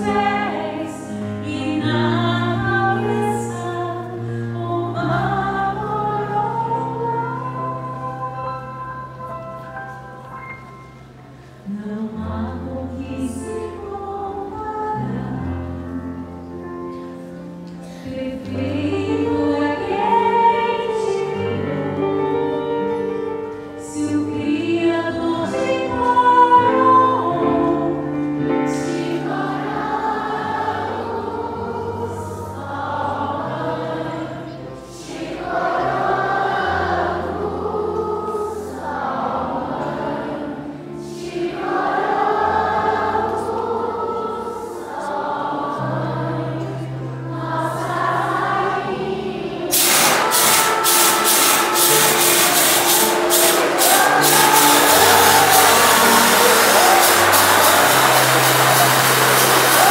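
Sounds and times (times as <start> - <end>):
woman singing: 0.0 - 8.4, 11.7 - 16.0, 18.1 - 22.5, 23.8 - 29.4
choir singing a hymn: 0.0 - 10.6, 11.6 - 59.9
instrumental accompaniment: 49.7 - 59.9.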